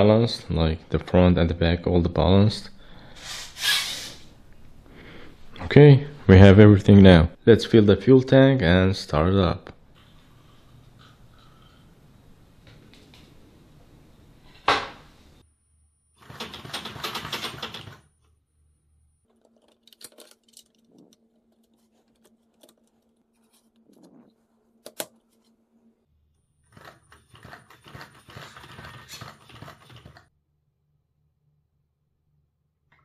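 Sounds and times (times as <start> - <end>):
clicks and rattles of plastic parts: 19.2 - 24.2
rustling handling noise: 19.2 - 25.6.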